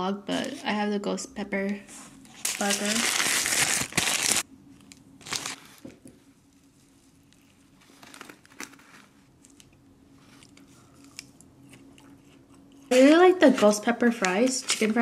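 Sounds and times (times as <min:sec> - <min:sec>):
paper wrapper crinkling: 0:02.3 - 0:04.5, 0:05.2 - 0:05.8, 0:06.6 - 0:12.4.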